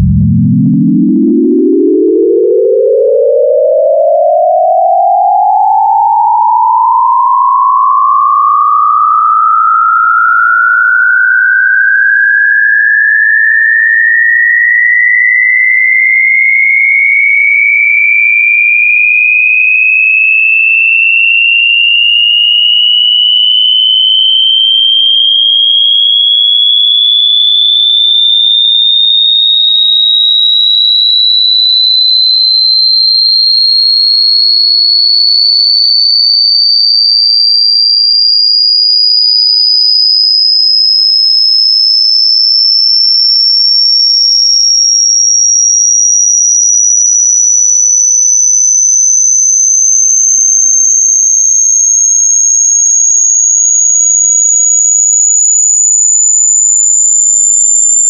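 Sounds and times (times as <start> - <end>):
electronic tone rising in pitch: 0.0 - 16.2, 21.2 - 26.3, 46.5 - 58.0.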